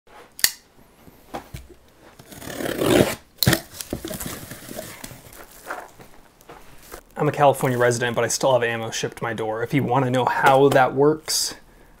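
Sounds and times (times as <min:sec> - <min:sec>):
cardboard flaps rustling: 0:01.2 - 0:07.0
packing tape tearing: 0:02.2 - 0:06.0.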